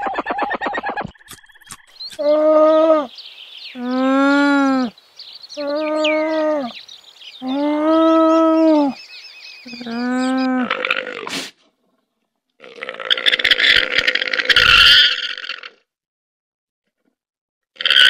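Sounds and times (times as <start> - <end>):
alpaca calling: 3.7 - 5.0, 5.6 - 6.8, 7.4 - 9.0, 9.6 - 11.4.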